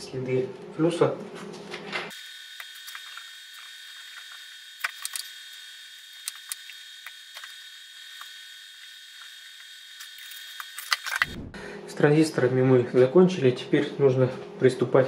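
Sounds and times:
high-pitched electronic whine: 2.1 - 12.1.

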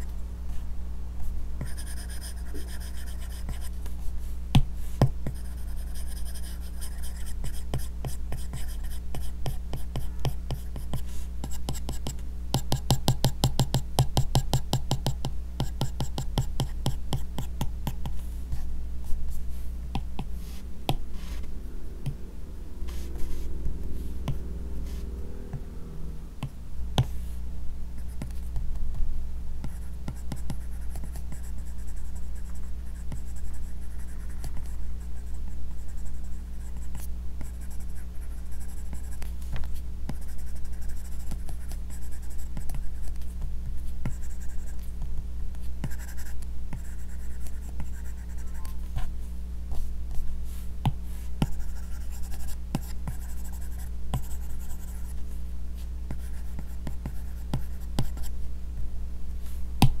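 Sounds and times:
steady low hum: 0.0 - 60.0
stylus scratching on screen: 22.8 - 25.7.

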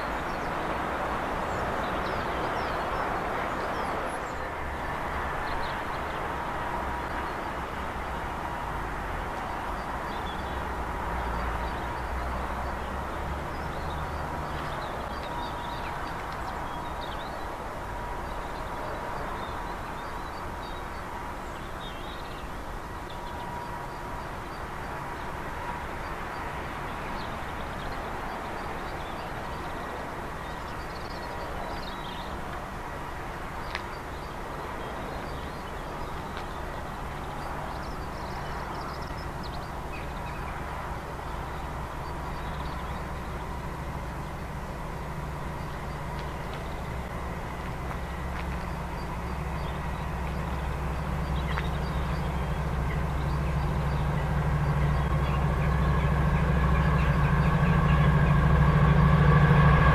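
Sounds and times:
diesel locomotive rumbling: 0.0 - 59.9
small birds chirping: 47.9 - 57.2.

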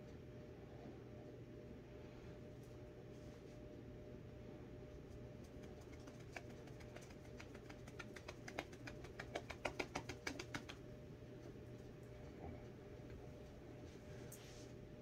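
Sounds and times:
faint room hum: 0.0 - 15.0
hands patting a bare belly: 5.4 - 10.8.

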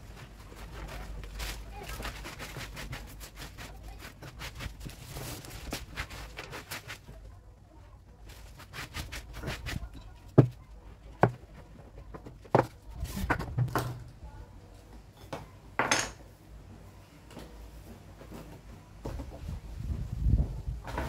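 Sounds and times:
plastic bag rustling: 0.0 - 7.1.

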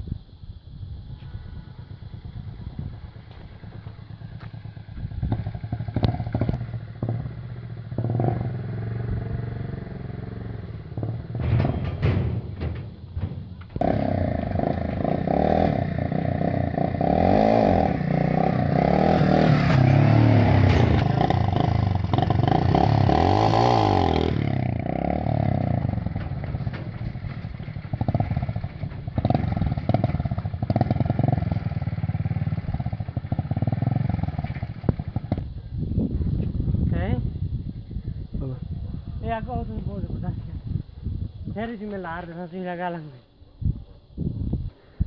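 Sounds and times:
small motorcycle engine revving: 1.2 - 11.5, 13.7 - 26.6, 28.0 - 35.5.

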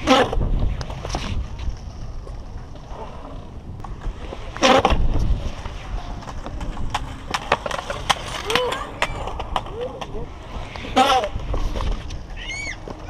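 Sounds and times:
skateboard scraping slide: 0.0 - 13.0
skateboard wheels rolling on concrete: 0.0 - 13.0
skateboard clacking on concrete: 3.8 - 13.0.

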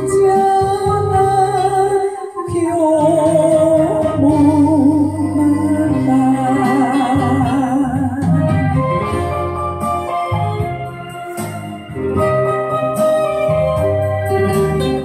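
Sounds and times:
woman singing into a microphone: 0.0 - 9.3
karaoke backing track: 0.0 - 15.0.

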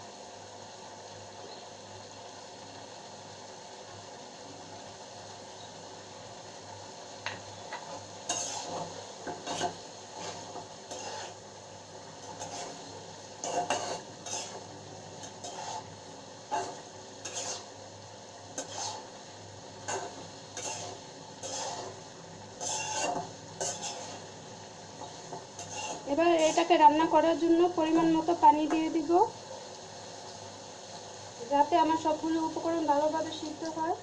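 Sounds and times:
faint steady hiss: 0.0 - 34.0
spatula scraping a metal pan: 7.9 - 11.4, 12.2 - 17.7, 18.6 - 19.1, 19.9 - 22.0, 22.6 - 24.3, 25.0 - 26.8.

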